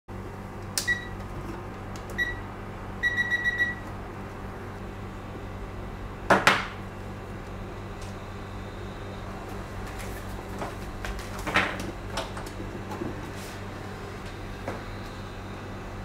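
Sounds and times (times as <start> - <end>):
steady low hum: 0.1 - 16.0
rework station beeps: 0.8 - 1.2, 2.1 - 3.9.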